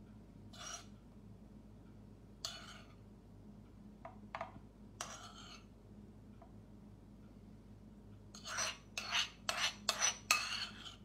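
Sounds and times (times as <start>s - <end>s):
metal spoon scraping ceramic bowl: 0.5s - 1.0s, 2.4s - 3.0s, 5.0s - 5.7s, 8.3s - 11.0s.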